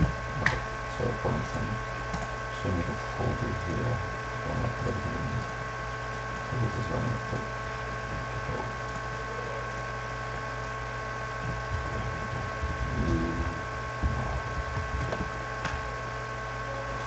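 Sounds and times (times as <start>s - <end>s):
computer electrical hum and whine: 0.0s - 17.0s
brief low rumbles: 11.2s - 16.0s.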